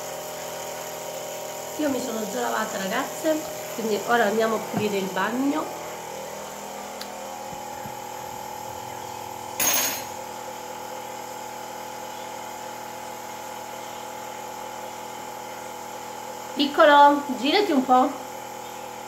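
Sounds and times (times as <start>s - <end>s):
nebulizer motor humming: 0.0s - 9.6s.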